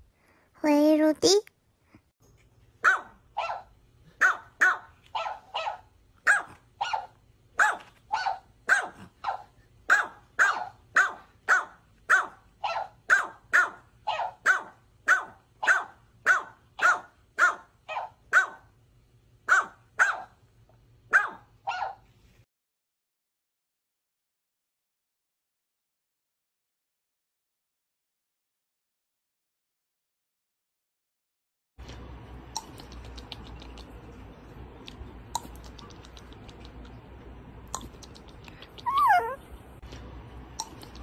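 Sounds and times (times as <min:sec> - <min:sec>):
small dog yapping: 0:02.8 - 0:18.6, 0:19.5 - 0:20.4, 0:21.1 - 0:22.0, 0:38.6 - 0:39.5.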